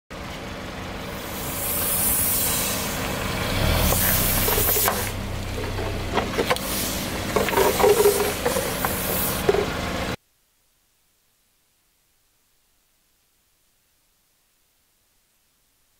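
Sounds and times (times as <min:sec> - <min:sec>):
car idling: 0:00.2 - 0:10.2
air hissing out: 0:01.0 - 0:05.3, 0:06.5 - 0:09.8
squashed plastic squeaking: 0:07.3 - 0:09.8.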